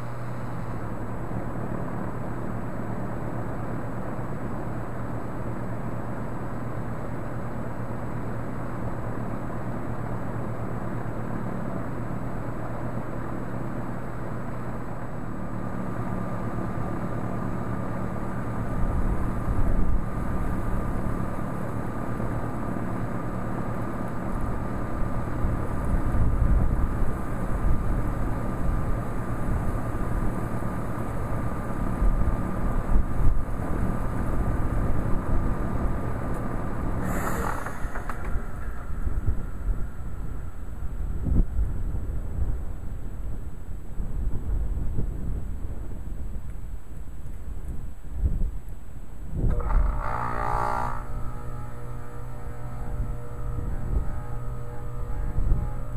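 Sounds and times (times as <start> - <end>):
thin high whine: 0.0 - 6.4, 7.0 - 42.7, 49.4 - 55.9
heat pump compressor and fan hum: 0.0 - 55.9
low rumbling: 36.4 - 42.7, 49.4 - 55.9
brief rushing noise: 37.0 - 40.7.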